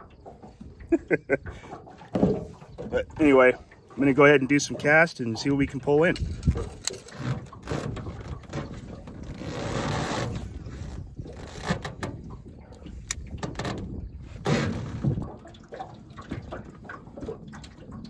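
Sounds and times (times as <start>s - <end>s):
water sloshing against a boat: 0.0s - 18.0s
fishing reel clicks and rustles: 4.0s - 14.0s.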